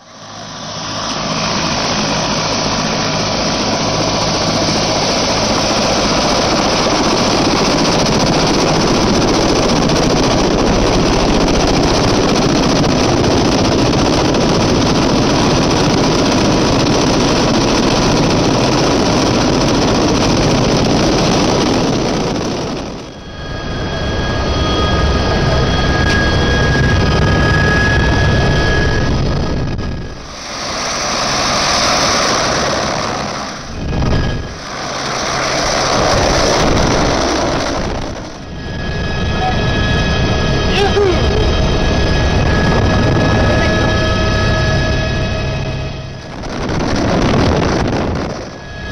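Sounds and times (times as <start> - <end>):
helicopter cabin drone with whine: 0.0 - 48.9
helicopter turbine and rotor roar: 0.0 - 48.9
wind buffeting microphone: 31.8 - 48.9.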